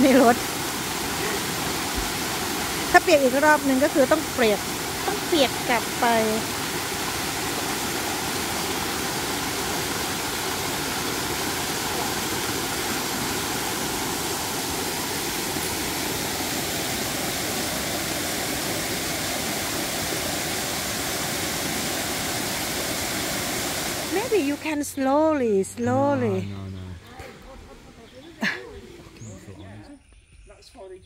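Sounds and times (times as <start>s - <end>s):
waterfall cascading over rocks: 0.0s - 24.8s.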